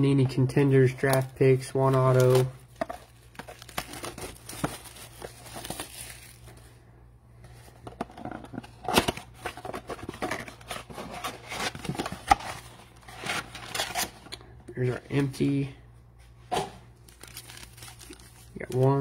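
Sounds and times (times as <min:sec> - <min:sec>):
foil packs crinkling and rustling: 0:01.0 - 0:06.7, 0:17.0 - 0:19.0.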